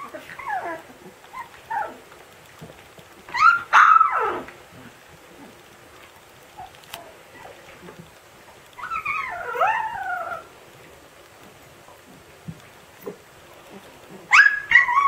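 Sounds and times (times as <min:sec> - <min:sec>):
puppy yelp: 0:00.0 - 0:02.0, 0:03.3 - 0:04.5, 0:08.8 - 0:10.5, 0:14.2 - 0:15.0
puppy yowling: 0:00.0 - 0:02.1, 0:03.3 - 0:04.5, 0:06.6 - 0:08.0, 0:08.7 - 0:10.5, 0:13.8 - 0:15.0.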